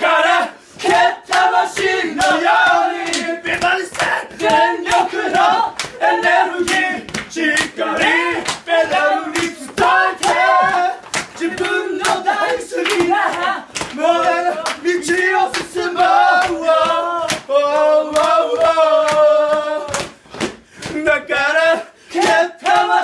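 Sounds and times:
men shouting and chanting: 0.0s - 20.2s
sharp hand claps: 0.8s - 14.0s, 14.6s - 21.0s.

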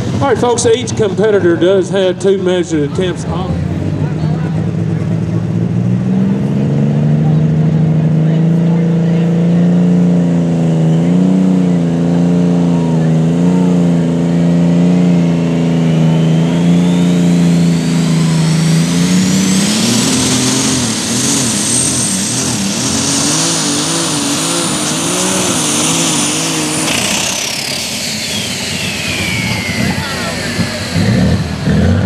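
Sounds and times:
diesel engine under full power: 0.0s - 32.0s
turbo whine: 12.6s - 32.0s.

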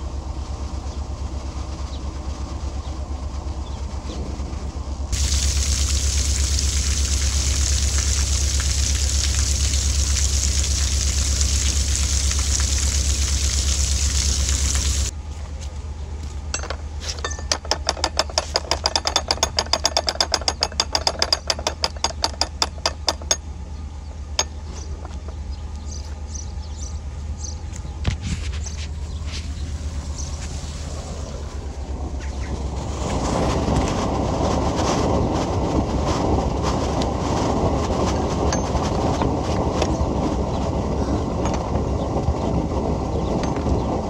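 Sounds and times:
diesel engine humming: 0.0s - 18.9s, 20.8s - 44.0s
water gushing into lock: 5.1s - 15.1s
ratchet clicking rapidly: 17.3s - 23.4s.

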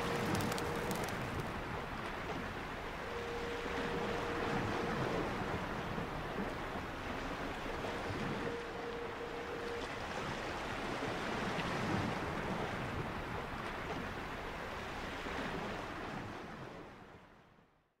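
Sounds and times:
sea waves washing on shore: 0.0s - 17.1s.

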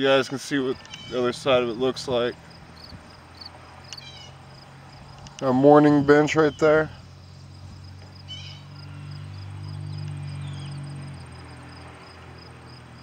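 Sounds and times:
insects chirping: 0.5s - 13.0s
bird chirp: 0.7s - 1.4s, 2.8s - 4.4s, 5.8s - 7.4s, 8.2s - 10.8s.

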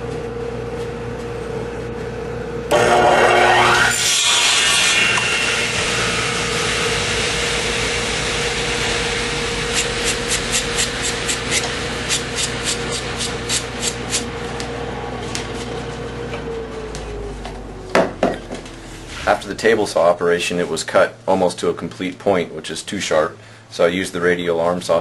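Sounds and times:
power machinery humming: 2.6s - 21.3s.

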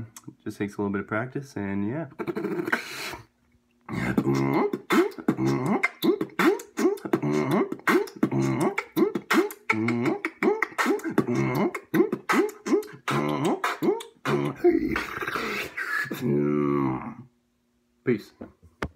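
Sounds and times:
beatboxing hummed bass: 0.0s - 0.4s, 2.0s - 3.3s, 3.9s - 17.2s
breathy noise: 3.9s - 17.2s
beatboxing clicks and snare hits: 4.1s - 16.1s.

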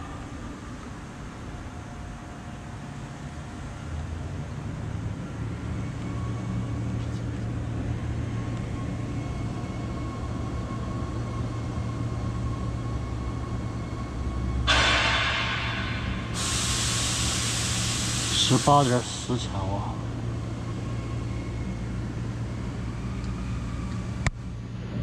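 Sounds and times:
diesel engine droning: 0.0s - 25.0s
loud hiss: 14.7s - 19.4s.

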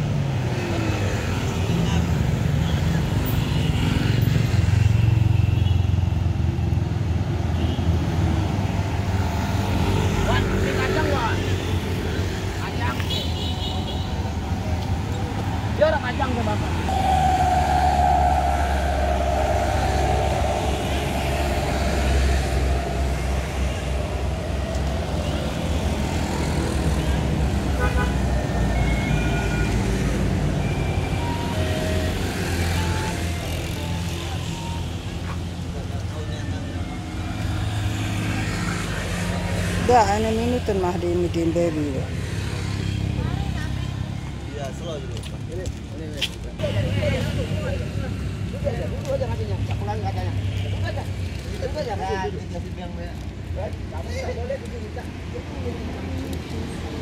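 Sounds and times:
road traffic engine rumble: 8.2s - 57.0s
vehicle engine humming: 16.6s - 32.2s
short high-pitched whistles: 16.8s - 26.4s.

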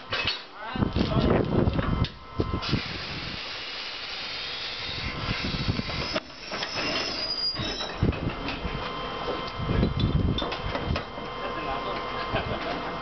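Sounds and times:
compressed air hissing: 2.6s - 7.6s
thin high whistle: 4.2s - 8.0s.

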